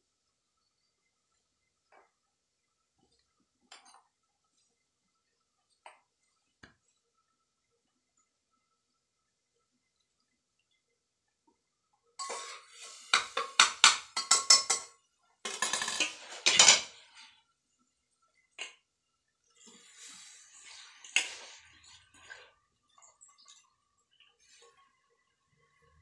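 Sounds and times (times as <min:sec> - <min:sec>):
metal spoon clanking in pot: 0:12.2 - 0:14.9
pots clattering: 0:12.2 - 0:17.2.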